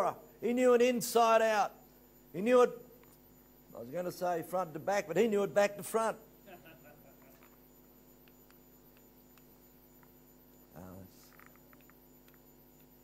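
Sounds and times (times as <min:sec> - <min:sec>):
electrical mains hum: 0:00.0 - 0:13.0
faint ticks: 0:03.0 - 0:03.6, 0:07.2 - 0:10.3, 0:11.2 - 0:13.0.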